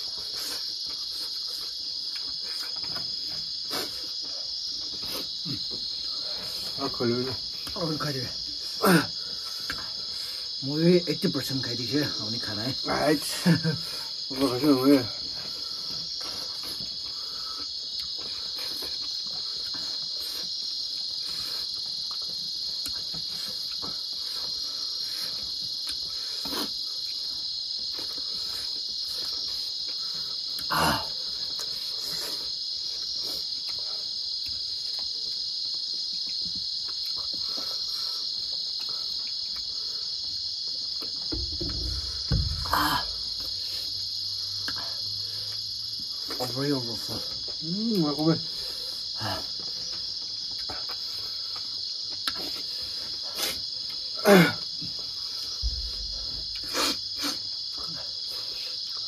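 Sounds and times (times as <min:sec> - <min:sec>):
high-pitched insect chorus: 0:00.0 - 0:59.0
knocks and smacks from eating: 0:40.8 - 0:43.5.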